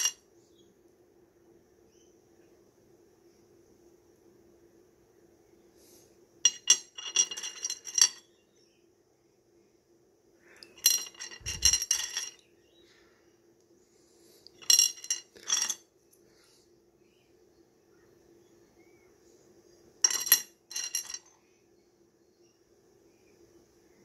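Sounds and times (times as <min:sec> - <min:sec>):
faint hum: 0:00.0 - 0:24.0
stones clinking together: 0:10.6 - 0:12.4, 0:20.0 - 0:21.3.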